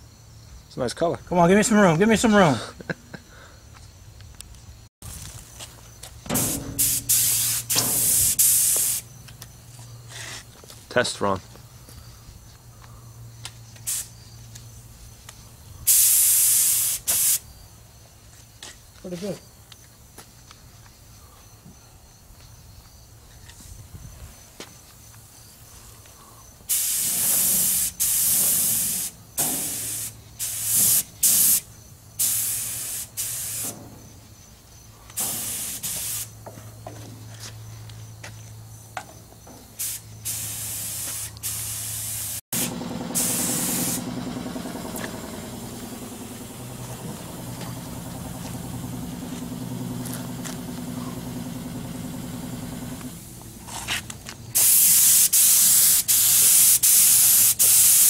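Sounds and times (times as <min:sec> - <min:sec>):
paint spray gun hissing: 0:06.3 - 0:09.1, 0:13.8 - 0:14.1, 0:15.9 - 0:17.4, 0:26.7 - 0:33.9, 0:35.2 - 0:36.4, 0:39.8 - 0:53.4, 0:54.6 - 0:58.0.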